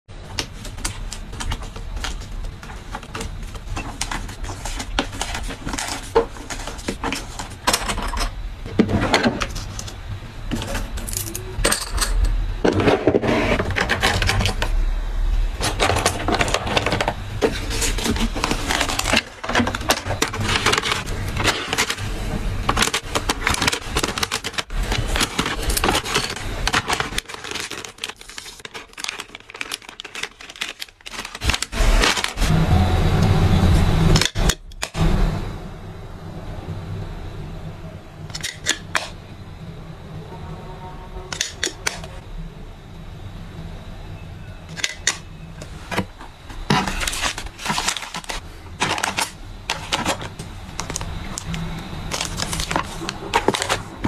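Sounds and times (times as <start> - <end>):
packaging clicks and crinkles: 0.3 - 8.0, 15.6 - 32.5, 44.7 - 54.0.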